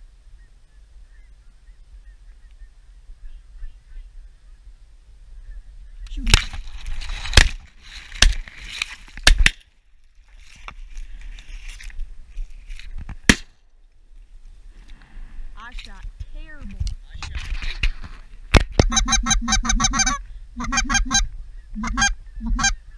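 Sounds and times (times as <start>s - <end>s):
shotgun blasts: 13.3s - 13.6s.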